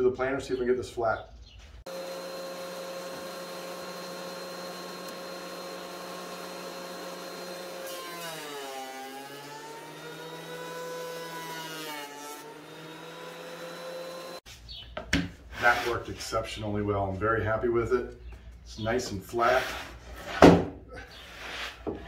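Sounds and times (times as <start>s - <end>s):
thickness planer whining: 1.9s - 14.4s.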